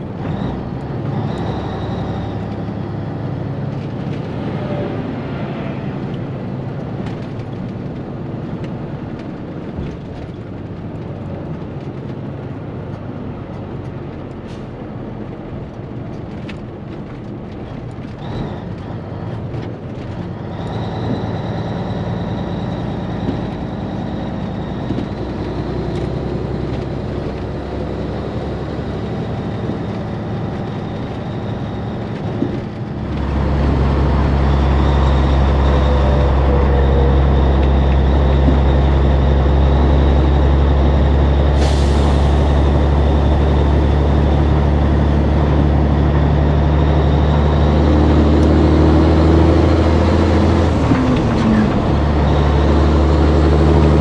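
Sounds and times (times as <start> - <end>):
truck diesel engine and road noise: 0.0 - 54.0.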